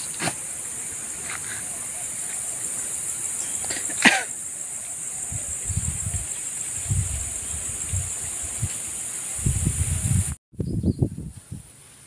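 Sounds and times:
insect chorus drone: 0.0 - 10.4
wind buffeting microphone: 5.2 - 11.8.

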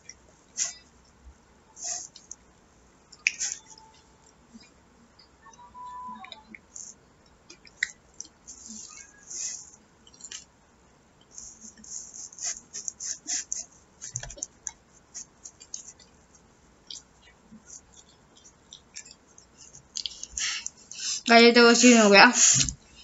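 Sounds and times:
person chewing with mouth clicks: 3.1 - 4.0, 6.2 - 10.5, 11.2 - 21.2.

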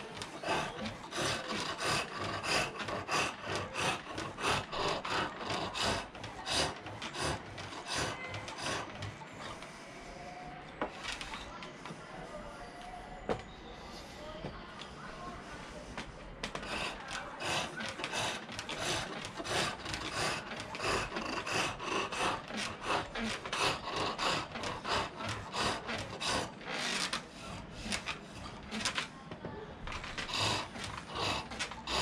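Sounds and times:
chisel cutting wood on lathe: 0.0 - 9.3, 16.5 - 28.9, 30.1 - 32.0.

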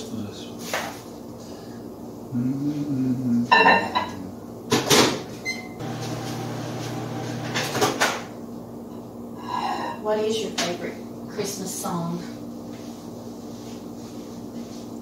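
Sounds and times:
microwave humming: 4.2 - 8.4.

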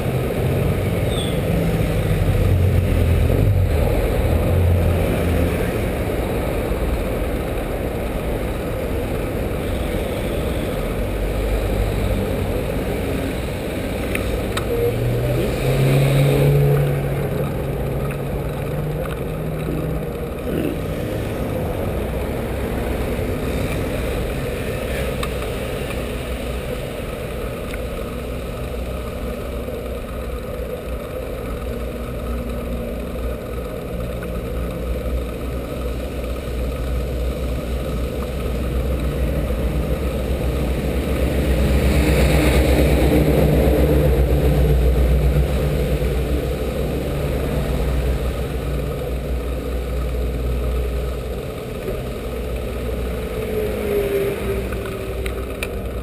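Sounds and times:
road and traffic noise: 0.0 - 56.0.

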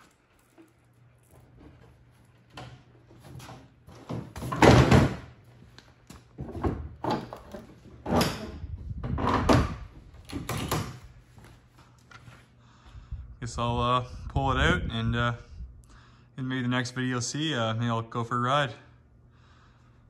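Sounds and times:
knocks and rattles: 6.4 - 11.0.

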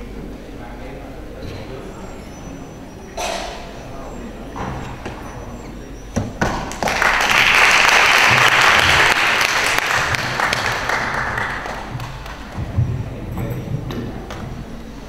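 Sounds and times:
audience applauding: 6.4 - 12.8.

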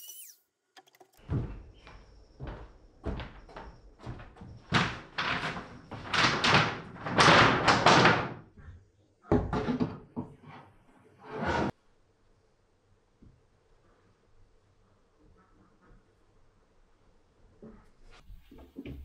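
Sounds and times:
wooden battens knocking and clattering: 2.4 - 8.6.

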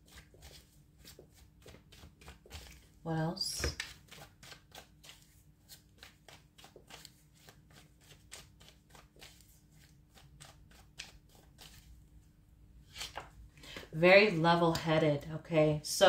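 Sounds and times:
cards being shuffled by hand: 0.0 - 12.1, 12.8 - 13.9.

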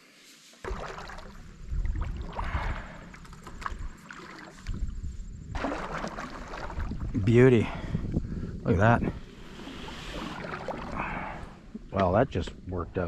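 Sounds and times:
paddle strokes in water: 0.4 - 7.1, 9.4 - 11.8
water splashing and lapping: 0.5 - 7.9, 9.1 - 12.0.

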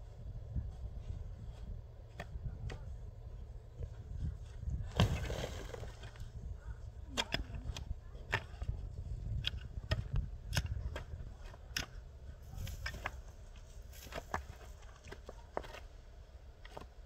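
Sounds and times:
shovel striking stony soil: 4.8 - 6.3, 9.3 - 15.9.

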